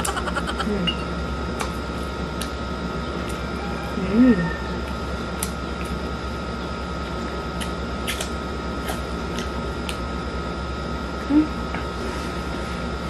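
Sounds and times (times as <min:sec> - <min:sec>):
air conditioner hum and hiss: 0:00.0 - 0:13.0
chewing clicks: 0:07.6 - 0:10.0
person humming: 0:11.2 - 0:11.6.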